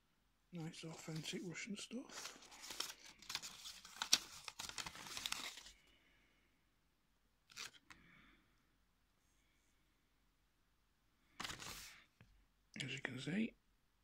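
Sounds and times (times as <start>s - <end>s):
paper leaflets rustling: 0.7s - 5.8s, 7.5s - 7.9s, 11.4s - 12.0s.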